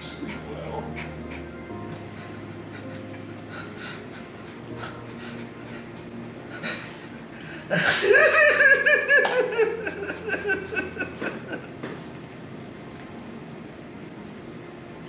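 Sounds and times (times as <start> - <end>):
person sobbing and wailing: 0.0 - 11.6.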